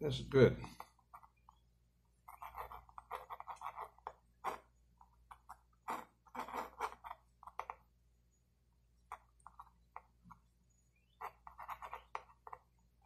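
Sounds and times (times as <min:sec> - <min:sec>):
pencil scratching on paper: 0:02.2 - 0:07.8, 0:11.1 - 0:12.8.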